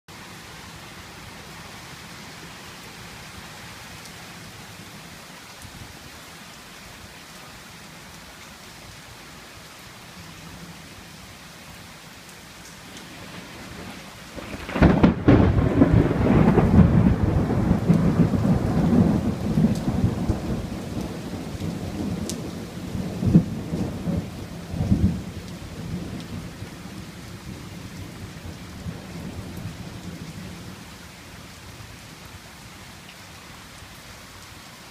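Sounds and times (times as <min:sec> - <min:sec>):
heavy rain: 0:00.1 - 0:34.9
thunder booming: 0:13.2 - 0:20.5.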